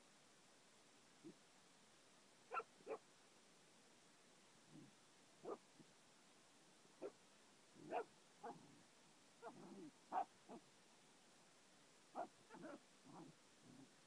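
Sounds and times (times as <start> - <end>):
dog yipping and grunting: 7.8 - 8.8, 9.4 - 10.6, 12.2 - 13.9.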